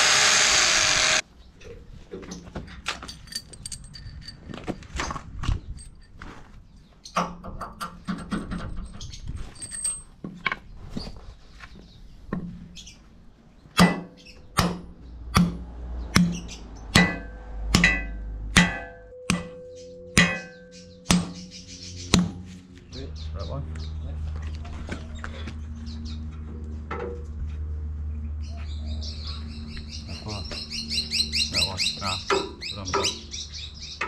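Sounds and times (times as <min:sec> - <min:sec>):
metal clinks and taps: 0:02.7 - 0:04.9
hammer pounding steel bolt: 0:13.8 - 0:19.6, 0:20.2 - 0:21.5.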